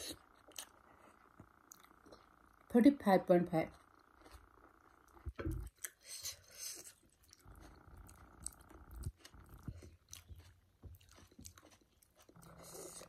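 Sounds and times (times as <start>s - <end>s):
chewing: 0.0s - 2.7s, 3.7s - 13.0s
fingers squishing bread in sauce: 5.0s - 13.0s.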